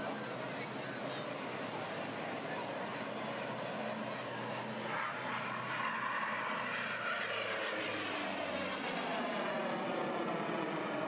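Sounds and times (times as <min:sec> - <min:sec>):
airplane flying past: 0:00.0 - 0:11.0.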